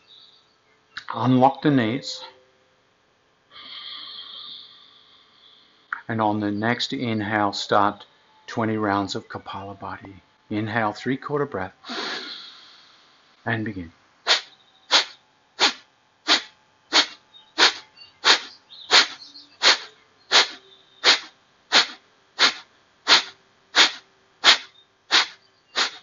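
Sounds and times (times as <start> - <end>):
forceful nasal exhalations: 3.5 - 5.6, 11.8 - 13.2, 14.3 - 26.0.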